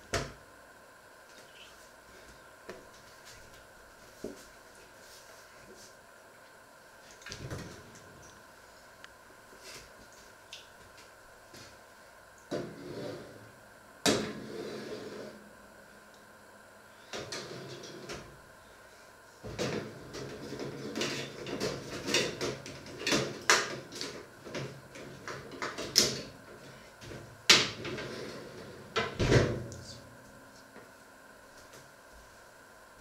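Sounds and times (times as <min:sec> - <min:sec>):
metal tray scraping oven rails: 0:14.3 - 0:15.4
oven door thumping shut: 0:29.0 - 0:29.7.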